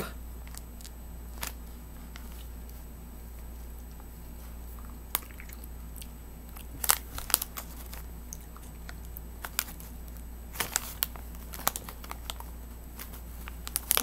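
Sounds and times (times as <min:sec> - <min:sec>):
steady low hum: 0:00.0 - 0:14.0
plastic package crinkling: 0:00.4 - 0:02.8, 0:06.5 - 0:14.0.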